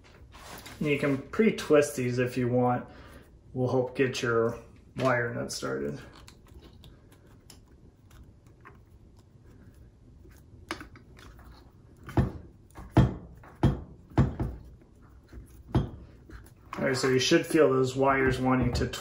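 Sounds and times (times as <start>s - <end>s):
dull knocks on countertop: 12.1s - 14.6s.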